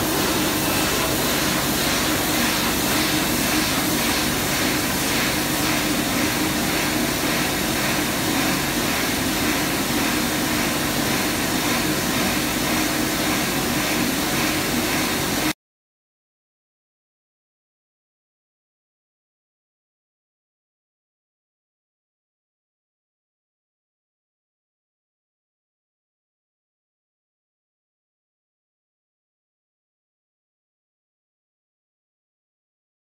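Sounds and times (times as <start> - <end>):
machine humming and hissing: 0.0 - 15.5.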